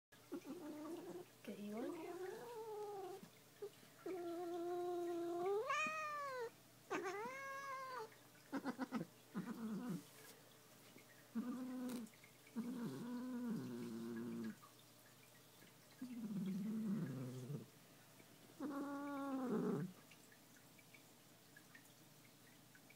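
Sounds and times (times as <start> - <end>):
cat growling and yowling: 4.1 - 10.1.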